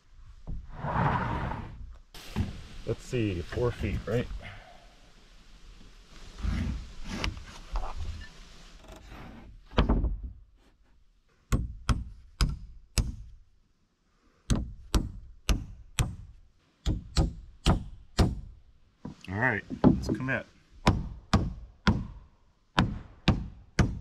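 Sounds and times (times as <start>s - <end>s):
dull knocks and scraping: 0.3s - 2.7s, 6.3s - 10.8s, 19.0s - 20.4s
hammer driving nails into wood: 22.8s - 24.0s.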